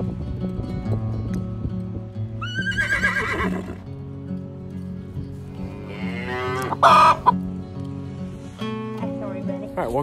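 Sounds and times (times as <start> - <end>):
horse whinnying: 2.4 - 3.9, 5.7 - 7.3.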